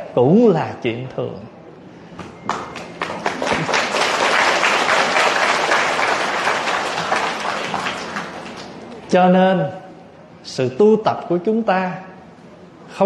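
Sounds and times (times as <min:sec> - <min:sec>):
audience applauding: 0:02.5 - 0:09.0.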